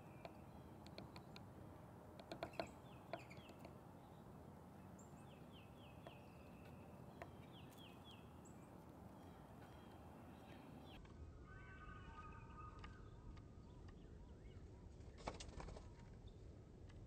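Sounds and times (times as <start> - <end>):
bird chirping: 0.0 - 1.4, 2.2 - 14.7
woodpecker pecking: 0.0 - 4.2, 5.1 - 10.6.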